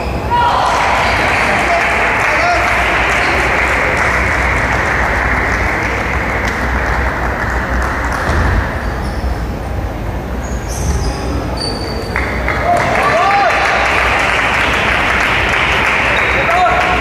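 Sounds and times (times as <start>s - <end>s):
crowd murmur: 0.0s - 17.0s
crowd applause: 0.3s - 8.9s, 12.0s - 17.0s.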